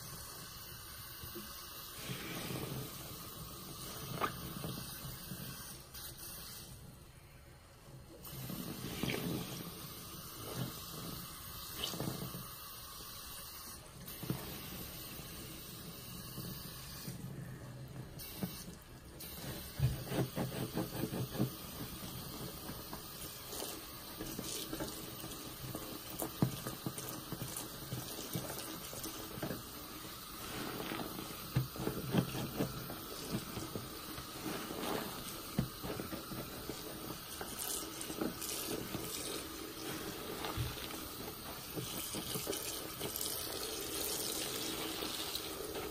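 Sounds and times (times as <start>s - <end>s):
sponge squishing in suds: 1.9s - 5.8s, 8.2s - 12.5s, 13.8s - 45.9s
tap water running into sink: 18.2s - 45.9s.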